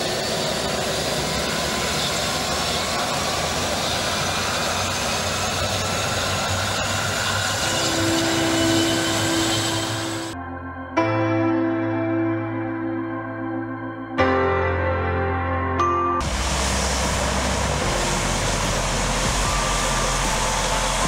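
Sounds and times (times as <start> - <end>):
turbine whine: 0.0 - 10.4, 16.2 - 21.0
turboprop engine roar: 0.0 - 10.4, 16.2 - 21.0.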